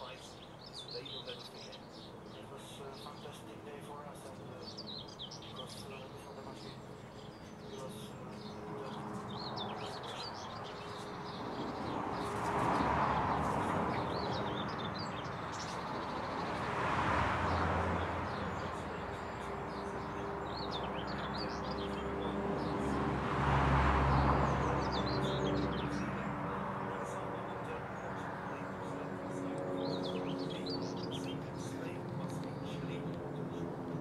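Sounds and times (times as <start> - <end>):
small birds chirping: 0.0 - 34.0
broad rushing noise: 7.4 - 34.0.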